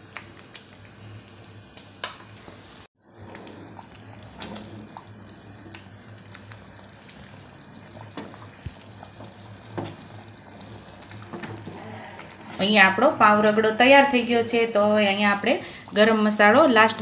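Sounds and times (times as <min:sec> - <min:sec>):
curry simmering in a pan: 0:03.0 - 0:17.0
bubbles popping: 0:03.3 - 0:12.6.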